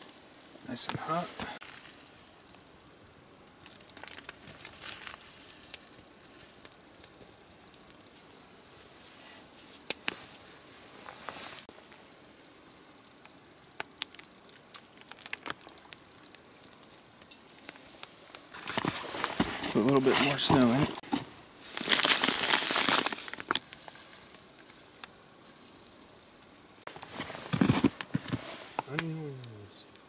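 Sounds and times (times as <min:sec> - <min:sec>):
campfire hiss and crackles: 0:00.0 - 0:30.0
wrapper crinkling: 0:03.7 - 0:06.7, 0:14.0 - 0:16.9, 0:17.5 - 0:25.2, 0:26.9 - 0:29.5.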